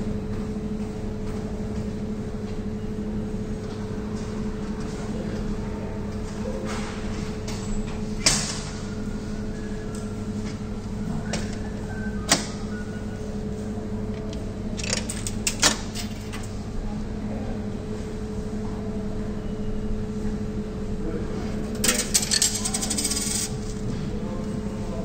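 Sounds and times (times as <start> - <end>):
steady machine hum: 0.0 - 25.0
coins clinking into machine: 14.8 - 16.4, 21.7 - 23.8.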